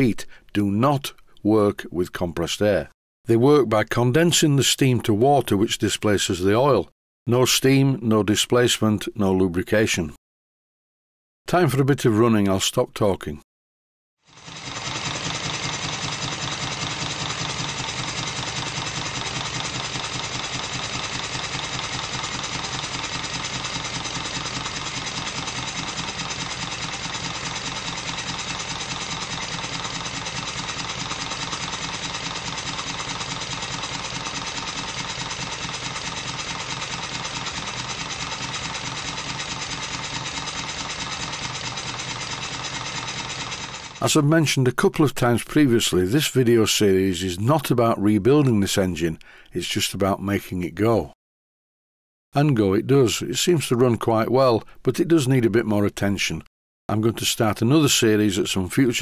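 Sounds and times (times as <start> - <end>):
model steam engine running: 14.3 - 44.1.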